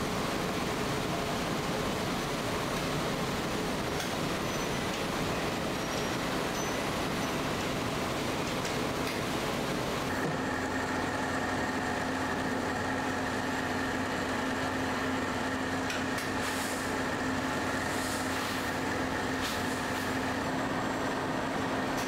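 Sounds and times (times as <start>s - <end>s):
machinery hum: 0.0s - 22.0s.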